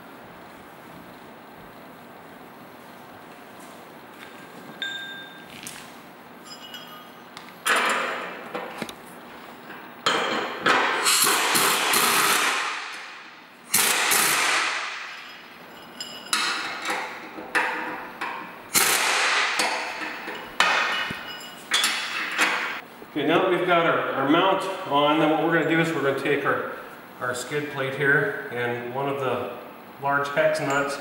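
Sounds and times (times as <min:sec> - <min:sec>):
pneumatic wrench bursts: 0:11.0 - 0:12.7, 0:13.7 - 0:14.8, 0:18.7 - 0:19.6.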